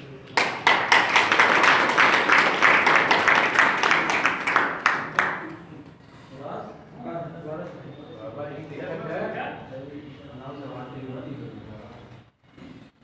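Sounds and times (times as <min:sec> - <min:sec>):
audience clapping: 0:00.2 - 0:05.7.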